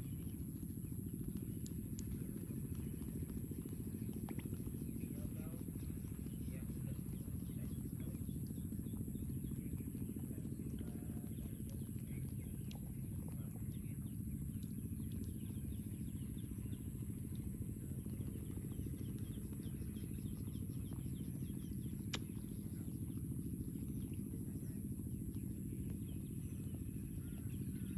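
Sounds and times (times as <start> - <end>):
small birds chirping: 0.0 - 27.9
steady low rumble: 0.0 - 27.9.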